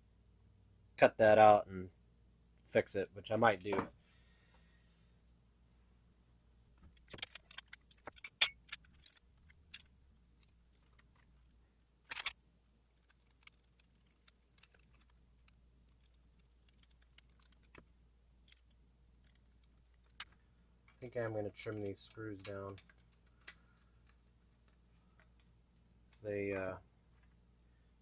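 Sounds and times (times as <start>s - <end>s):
hard parts clicking together: 6.8s - 12.4s, 13.0s - 26.3s.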